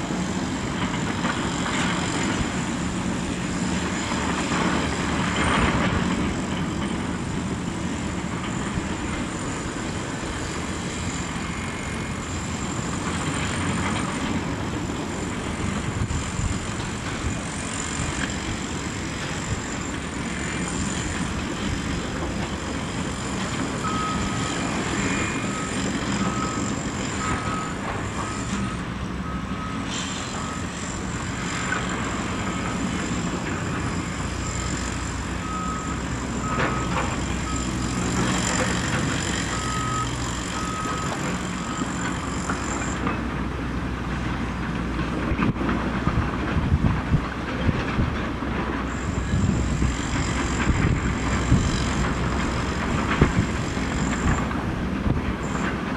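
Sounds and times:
diesel engines of heavy machinery: 0:00.0 - 0:55.9
back-up alarm beeping: 0:23.8 - 0:30.8, 0:39.5 - 0:43.0.

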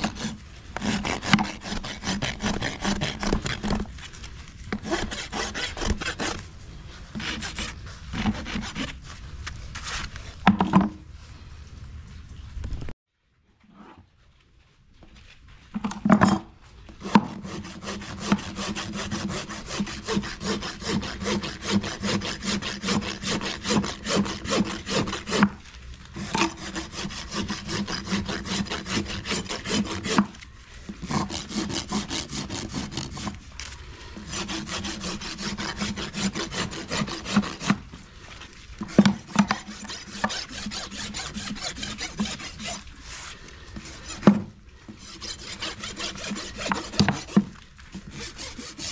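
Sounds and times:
hoof rasp filing: 0:00.0 - 0:04.0, 0:04.7 - 0:09.2, 0:17.0 - 0:25.6, 0:26.2 - 0:33.5, 0:34.1 - 0:37.9, 0:38.8 - 0:48.9.

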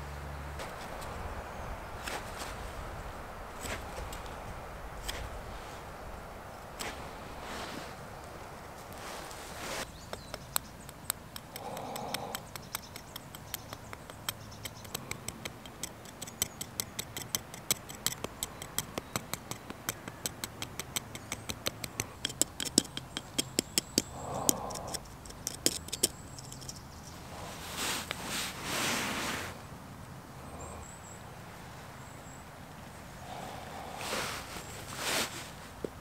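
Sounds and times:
knife tapping on eggshell: 0:10.0 - 0:26.8.

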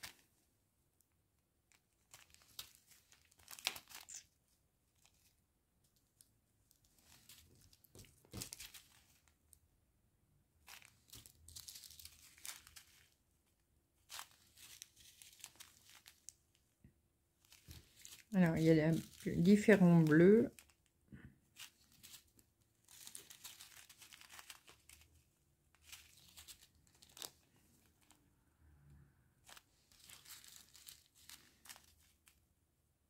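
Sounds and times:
plastic packaging crinkling: 0:01.7 - 0:04.3, 0:06.8 - 0:09.3, 0:10.6 - 0:13.2, 0:14.0 - 0:16.5, 0:17.4 - 0:20.9, 0:21.5 - 0:28.2, 0:29.4 - 0:32.4.

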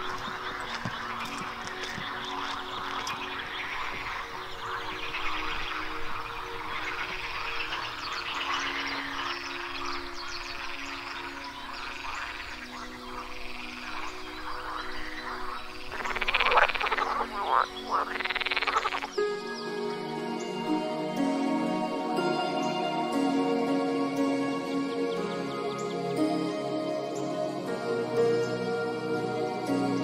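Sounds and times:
loud rattling frog croaks: 0:00.0 - 0:19.2
frogs croaking chorus: 0:00.0 - 0:30.0.

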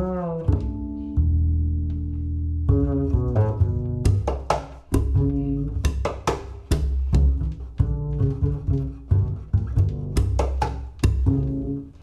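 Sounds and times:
double bass plucked: 0:00.0 - 0:12.0.

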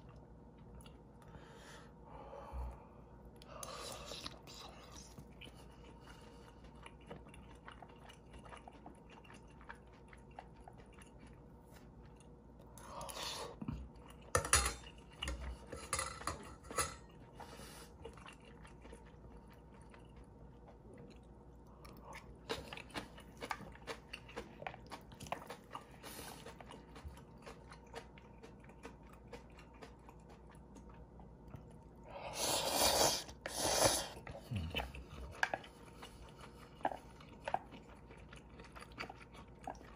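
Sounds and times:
wet chewing: 0:03.4 - 0:39.9
slurping: 0:32.2 - 0:37.7.

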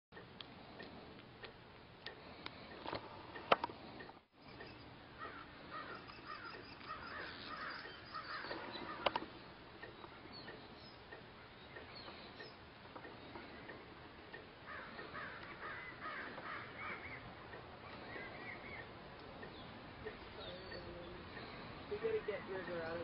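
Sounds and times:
sharp clicks: 0:00.2 - 0:05.4, 0:06.0 - 0:15.6
faint bird calls: 0:04.4 - 0:22.9.

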